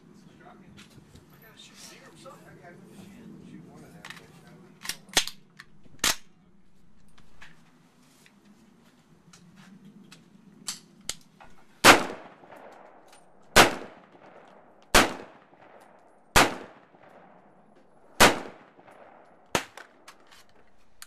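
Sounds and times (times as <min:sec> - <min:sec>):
faint gunshots: 0:11.8 - 0:17.6, 0:18.2 - 0:20.1
rifle shots with echo: 0:11.8 - 0:20.1.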